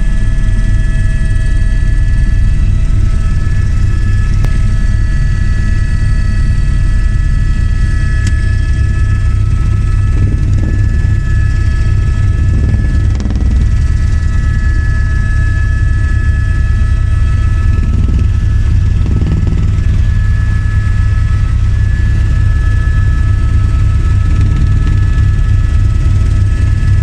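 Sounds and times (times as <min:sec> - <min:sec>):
helicopter cabin drone: 0:00.0 - 0:27.0
high whining tones: 0:07.7 - 0:27.0.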